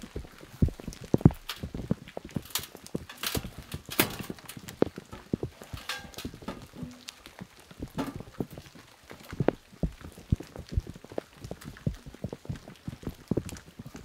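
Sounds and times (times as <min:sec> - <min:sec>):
metal chimney pipe knocking: 0:05.7 - 0:07.1.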